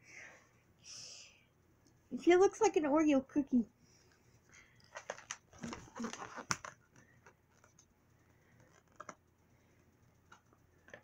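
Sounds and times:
packaging rustling: 4.8 - 7.8.

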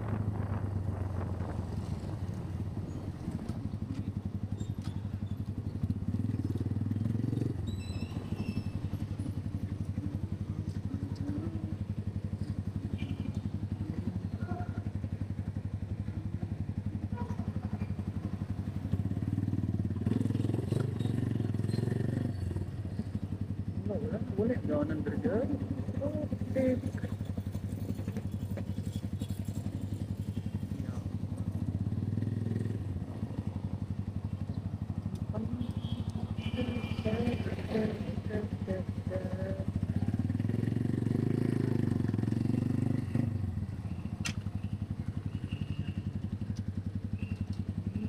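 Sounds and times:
small motorcycle engine idling: 0.1 - 48.0.

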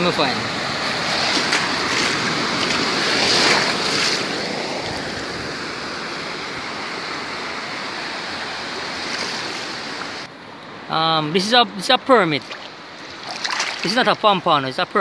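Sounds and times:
seawater sloshing and splashing: 0.7 - 5.0, 8.8 - 10.3, 12.4 - 14.1.

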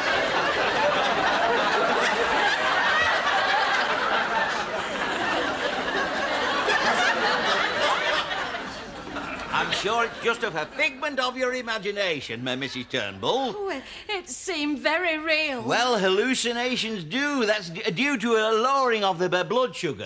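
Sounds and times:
audience laughing: 0.0 - 11.5.

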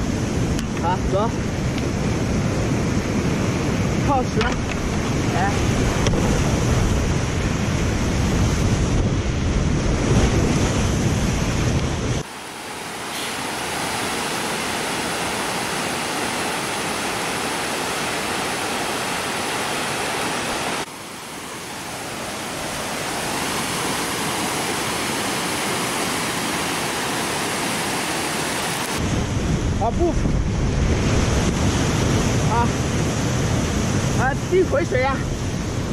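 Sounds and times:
whitewater rapids churning: 12.2 - 29.1.

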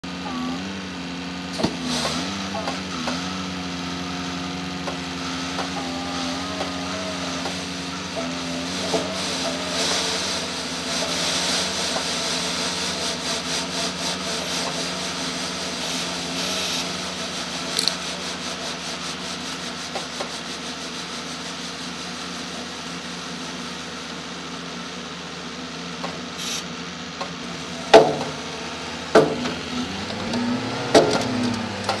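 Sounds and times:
diesel truck engine running: 0.0 - 32.0
loud knocks: 27.9 - 28.4, 29.1 - 29.6, 30.9 - 31.3.

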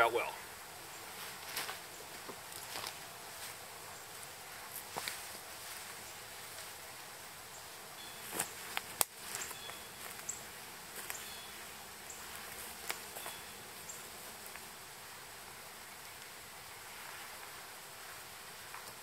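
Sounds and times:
sticks cracking and leaves rustling: 1.2 - 5.4, 8.2 - 11.5, 12.1 - 14.8.

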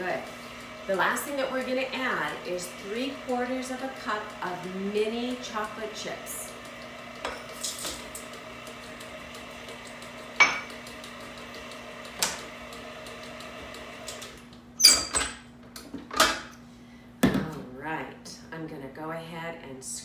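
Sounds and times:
stand mixer running: 0.0 - 14.4.

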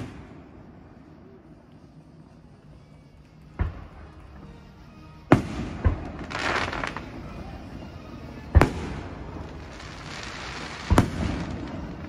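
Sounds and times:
crackling hiss of fireworks: 0.0 - 12.0
firework shells booming: 8.5 - 12.0.

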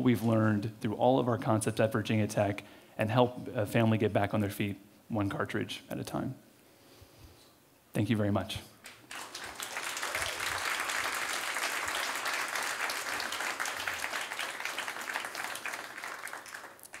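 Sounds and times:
audience applauding: 8.9 - 17.0.

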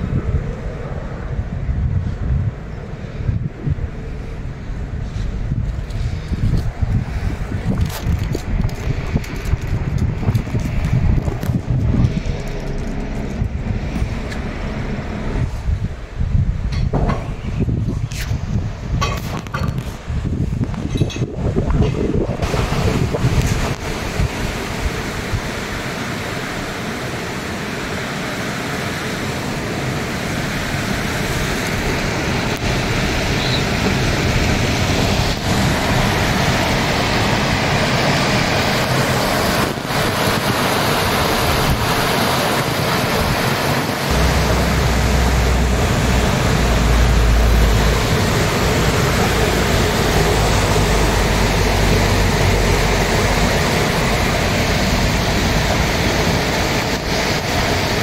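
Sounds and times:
wind rumble on microphone: 0.0 - 58.0
water rushing over rocks: 2.9 - 17.4, 18.4 - 58.0.

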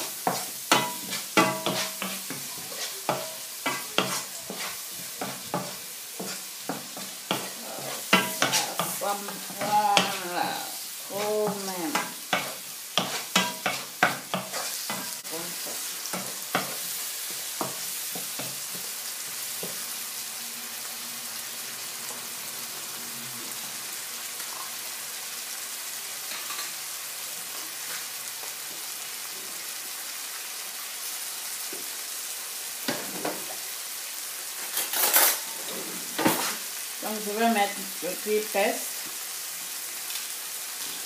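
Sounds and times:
vegetables sizzling in frying pan: 0.0 - 41.0
wooden spoon scraping pan: 0.2 - 17.0.

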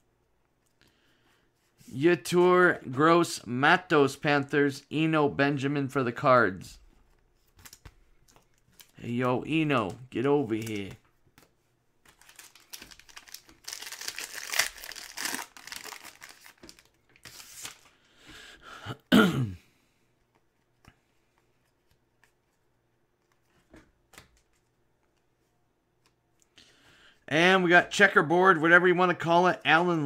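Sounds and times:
faint clicks of cards handled: 6.9 - 13.6, 20.1 - 26.6
foil wrapper crinkling and tearing: 12.1 - 17.9
person coughing: 18.7 - 19.7.

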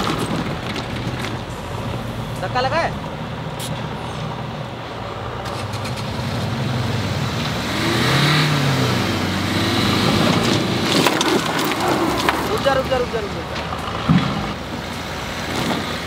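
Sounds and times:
gravel crackling under wheels: 0.0 - 16.0
car engine revving hard: 5.5 - 12.7.

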